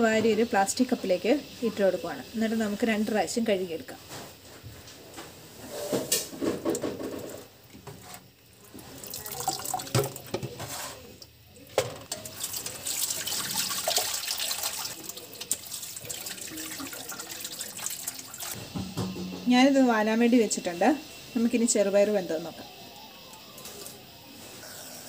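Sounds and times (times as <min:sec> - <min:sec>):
water pouring in a sink: 0:06.4 - 0:18.6.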